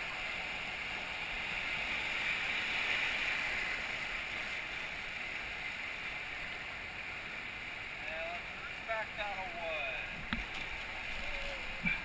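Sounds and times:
whitewater rapids rushing: 0.0 - 12.0.

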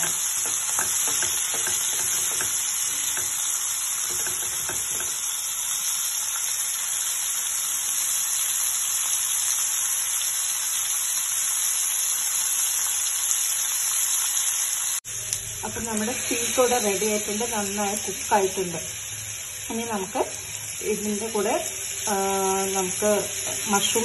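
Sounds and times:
spatula scraping a pan: 0.0 - 3.4
steaks sizzling in a pan: 0.0 - 24.0.

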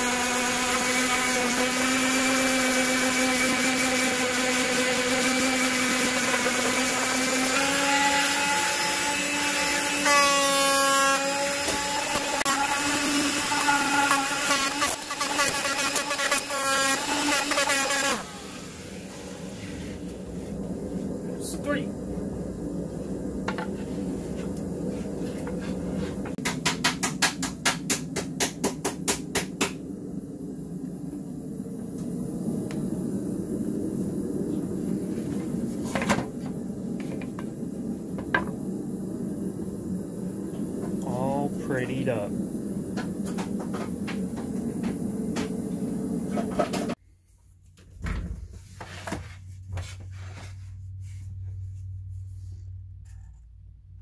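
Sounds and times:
steady low hum: 18.2 - 47.6.

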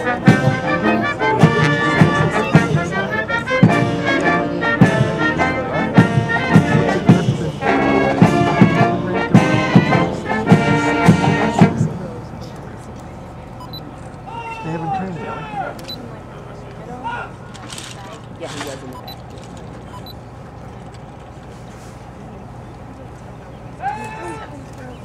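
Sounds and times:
trumpets and trombones: 0.0 - 11.8.

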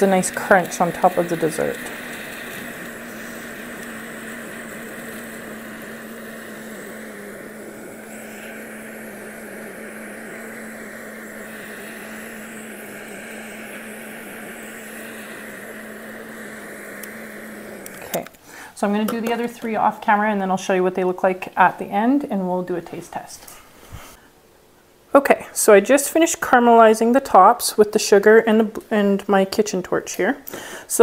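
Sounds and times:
blowtorch flame rushing: 0.0 - 19.4.

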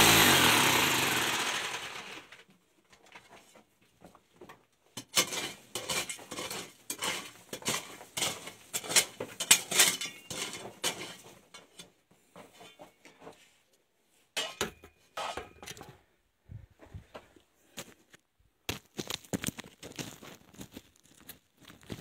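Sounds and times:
rattling stones: 5.0 - 11.7
tool scraping stony ground: 5.0 - 13.4, 14.4 - 16.0
metal tool clinking on rock: 5.2 - 11.0.

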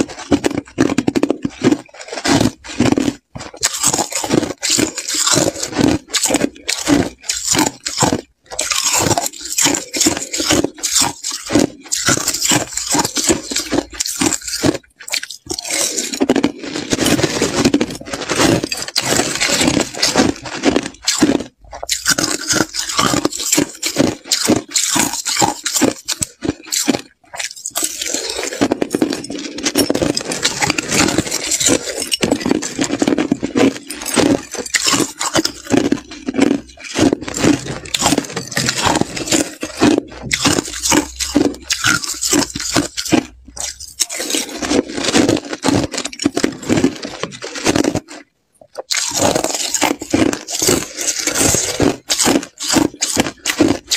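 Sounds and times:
ice being chewed and crunched: 0.0 - 53.9
metal spoon scraping slush: 3.5 - 21.2, 21.8 - 45.0.

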